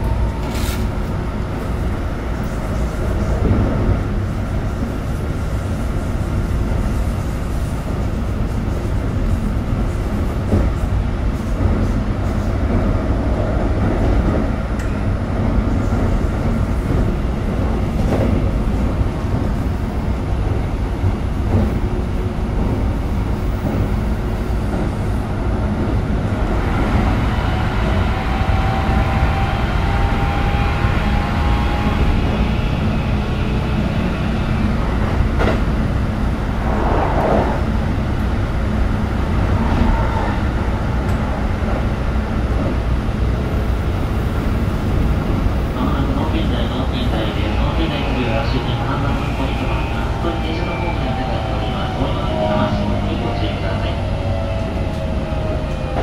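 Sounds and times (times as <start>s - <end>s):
train rumbling on rails: 0.0s - 56.0s.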